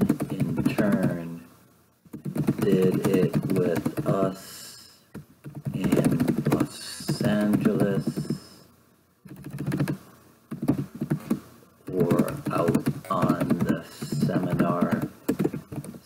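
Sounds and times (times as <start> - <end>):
keyboard typing clicks: 0.0 - 1.2, 2.1 - 4.2, 5.4 - 8.4, 9.3 - 16.0
man speaking into headset: 0.3 - 1.4, 2.6 - 4.8, 5.7 - 8.6, 11.9 - 15.1.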